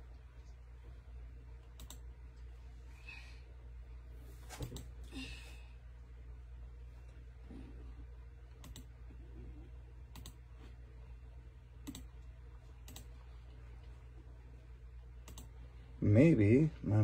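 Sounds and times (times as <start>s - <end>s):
low steady hum: 0.0s - 17.0s
computer mouse clicking: 1.6s - 2.1s, 8.6s - 8.9s, 10.1s - 10.4s, 11.8s - 12.2s, 12.8s - 13.2s, 15.2s - 15.5s.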